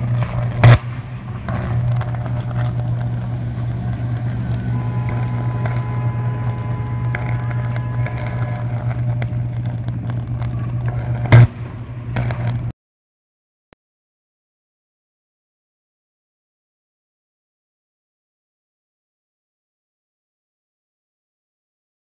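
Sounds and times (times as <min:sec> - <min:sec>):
arc flash bang: 0:00.0 - 0:12.7
low electrical buzz: 0:00.0 - 0:12.7.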